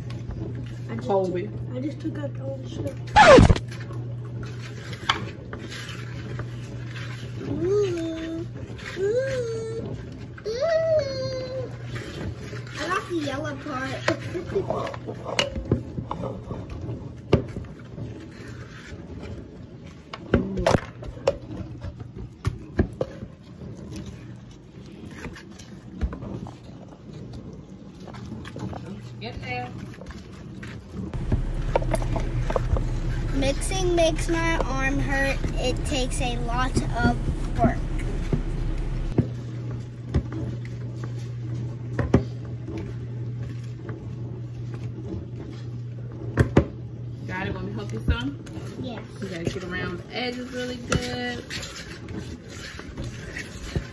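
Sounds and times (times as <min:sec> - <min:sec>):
whisk stirring thick batter: 0:03.7 - 0:10.8, 0:11.4 - 0:20.3, 0:21.4 - 0:39.0, 0:47.0 - 0:53.9
steady low hum: 0:31.2 - 0:39.2
whisk scraping plastic bowl: 0:31.2 - 0:39.2.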